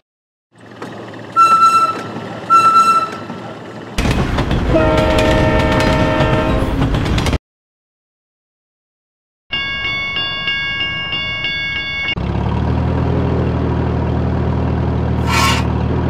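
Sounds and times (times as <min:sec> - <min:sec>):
train wheels clattering: 0:00.6 - 0:07.4
train horn blast: 0:01.4 - 0:03.4, 0:04.6 - 0:06.8
short high toots: 0:15.2 - 0:15.7.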